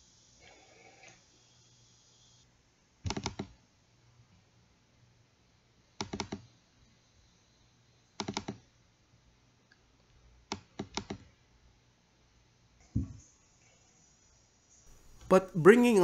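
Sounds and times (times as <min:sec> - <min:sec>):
mouse and keyboard clicking: 0:03.1 - 0:03.5, 0:06.0 - 0:06.5, 0:08.2 - 0:08.6, 0:10.5 - 0:11.3.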